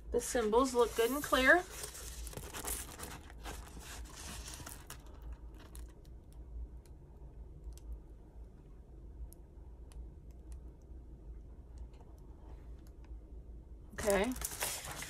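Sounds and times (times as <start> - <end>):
plastic film crinkling: 0.8 - 6.1, 14.0 - 15.0.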